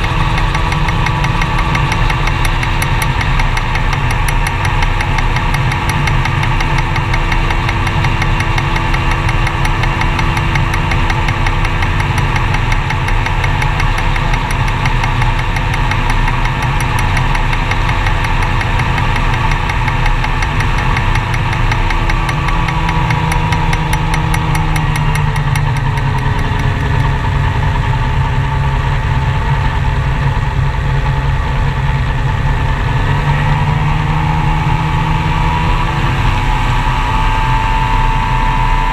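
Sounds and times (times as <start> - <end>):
gyroplane engine and propeller: 0.0 - 38.9.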